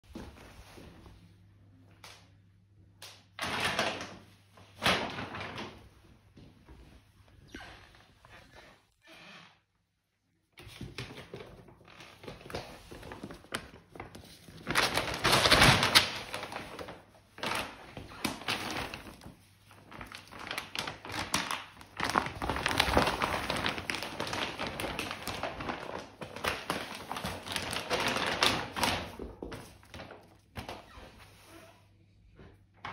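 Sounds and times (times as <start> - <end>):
plastic bag rustling: 3.4 - 6.9, 11.2 - 31.8.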